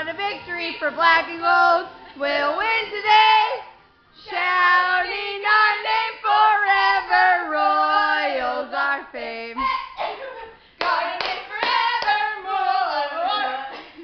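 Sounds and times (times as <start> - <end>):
women singing: 0.0 - 14.0
hand claps: 10.8 - 12.2.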